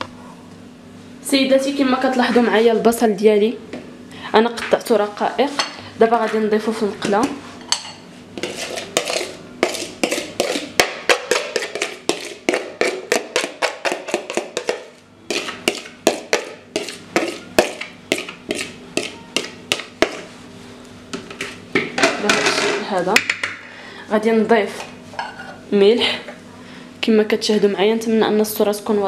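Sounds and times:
utensil scraping against a plate: 7.6 - 20.3, 21.2 - 21.6.

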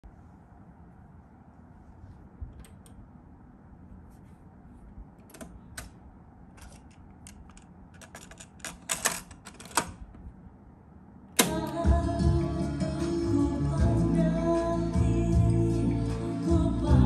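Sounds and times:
cassette door clicks: 5.2 - 6.0, 6.6 - 10.2, 11.3 - 11.8
power switch click: 11.3 - 11.8.

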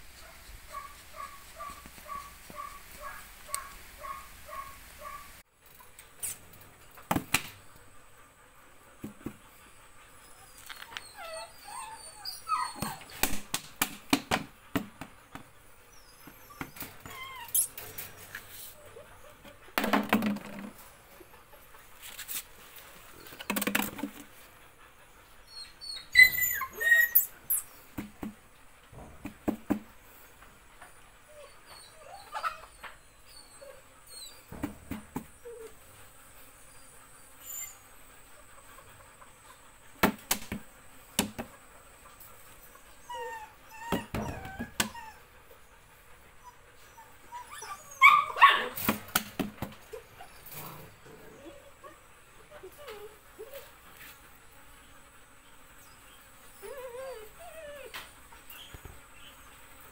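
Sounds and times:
puppies whining and yelping: 0.7 - 6.0, 9.4 - 13.5, 15.8 - 19.8, 24.8 - 27.8, 30.7 - 34.6, 35.3 - 36.0, 36.6 - 39.7, 42.4 - 49.0, 49.7 - 53.8, 55.8 - 59.4.

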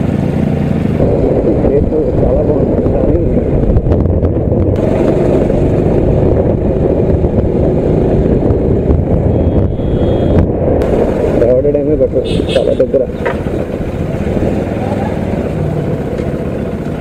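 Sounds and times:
motorcycle engine running: 0.0 - 10.2, 10.8 - 17.0
wind noise on microphone: 1.0 - 11.6.

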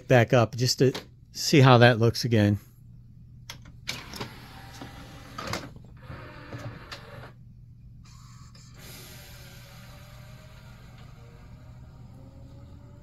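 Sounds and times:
disc spinning up whir: 4.0 - 7.4, 8.4 - 13.0.

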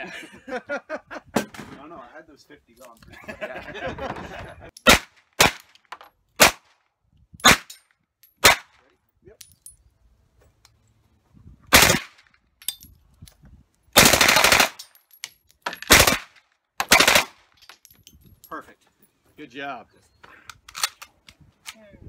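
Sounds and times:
submachine gun firing: 11.7 - 12.1, 14.0 - 14.8, 15.9 - 16.3, 16.9 - 17.4.

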